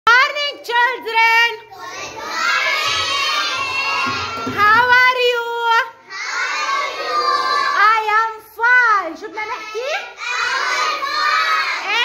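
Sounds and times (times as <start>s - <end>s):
children singing in unison: 1.8s - 4.5s, 6.1s - 7.8s, 10.2s - 11.9s.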